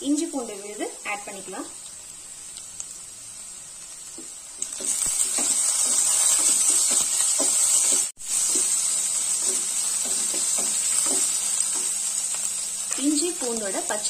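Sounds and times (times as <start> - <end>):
food sizzling in oil: 0.0 - 14.0
wooden spatula scraping pan: 4.7 - 8.8.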